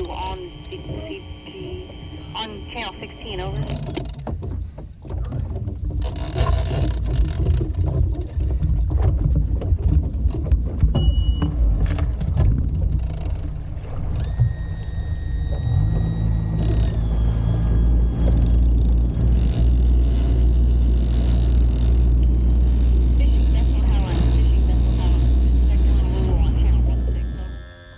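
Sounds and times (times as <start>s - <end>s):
high whine: 0.0s - 4.2s, 10.9s - 27.9s
outboard motor running: 0.0s - 27.9s
gear knocking and clattering: 3.6s - 14.6s, 15.7s - 27.3s.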